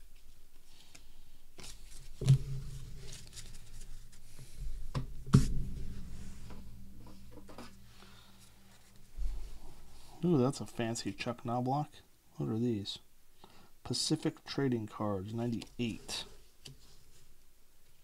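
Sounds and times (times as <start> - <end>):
cards rustling and flicking: 0.1 - 4.6.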